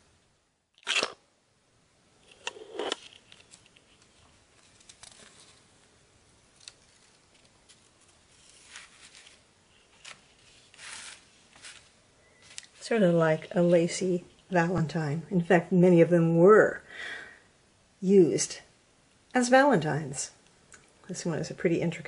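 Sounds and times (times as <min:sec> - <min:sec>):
stiff paper rustling and crackling: 0:03.0 - 0:12.8.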